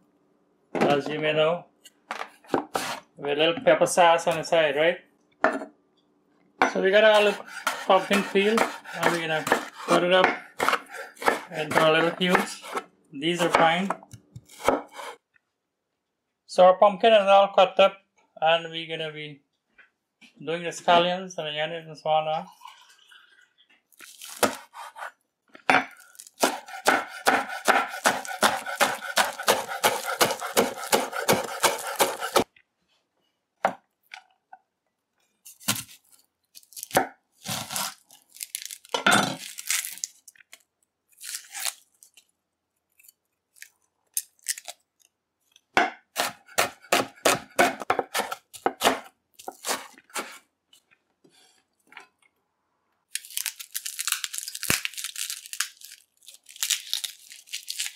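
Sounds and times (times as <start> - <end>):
knife chopping on cutting board: 2.5 - 3.0, 7.1 - 12.8, 13.4 - 15.2, 24.3 - 25.1, 25.8 - 32.5, 45.8 - 50.4.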